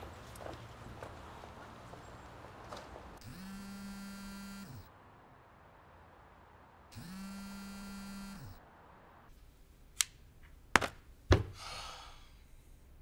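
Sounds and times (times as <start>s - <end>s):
mobile phone vibrating on console: 3.2s - 4.9s, 7.0s - 8.6s.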